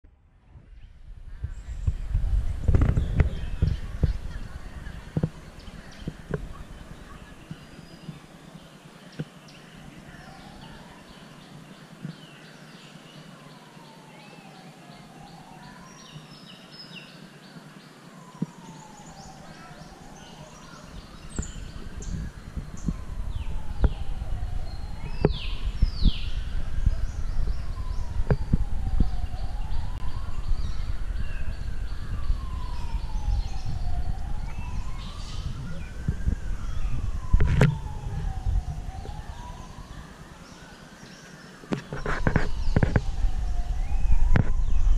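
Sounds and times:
birds chirping: 0.6s - 44.9s
siren wailing: 13.6s - 16.3s, 18.1s - 41.0s, 41.7s - 44.9s
loud low rumbling: 19.2s - 40.2s, 42.5s - 44.9s.

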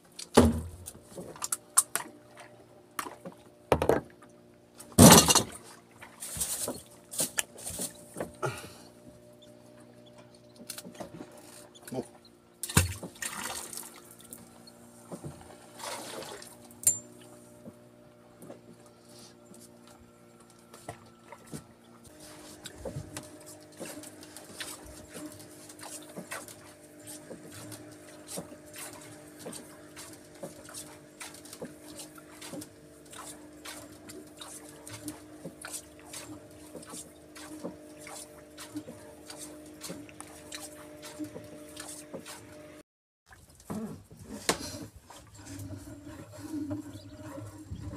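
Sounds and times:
outboard motor idling: 0.0s - 42.8s, 43.6s - 47.9s
thumps and knocks in a boat: 0.1s - 9.2s, 9.8s - 47.9s
water splashes: 10.6s - 16.8s, 22.1s - 42.6s.

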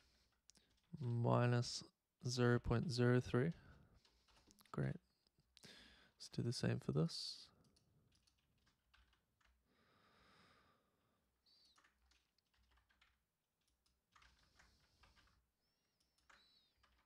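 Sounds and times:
faint keyboard typing: 0.1s - 1.2s, 3.2s - 5.8s, 7.4s - 17.0s.

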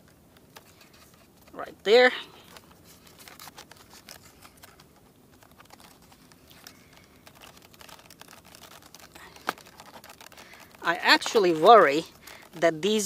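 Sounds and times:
foam and plastic parts clicking: 2.4s - 13.0s.

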